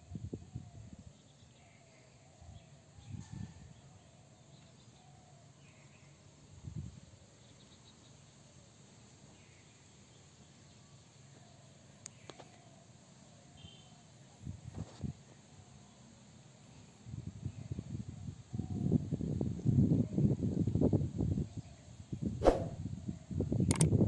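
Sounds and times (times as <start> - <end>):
insects: 0.0 - 24.0
sharp click: 22.4 - 22.8, 23.7 - 23.9.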